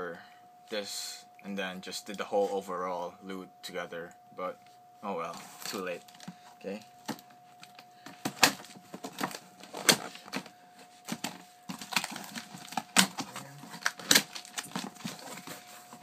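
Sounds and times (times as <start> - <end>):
packing tape and cardboard crackling: 5.4 - 6.4, 7.0 - 16.0.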